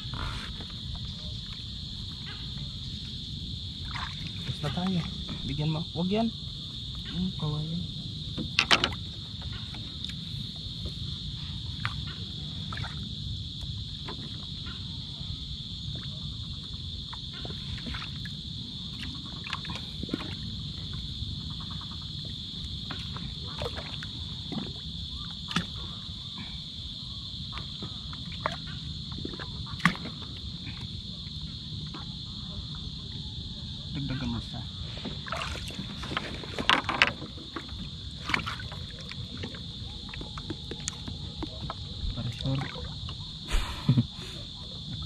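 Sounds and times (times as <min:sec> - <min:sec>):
insects buzzing: 0:00.0 - 0:45.0.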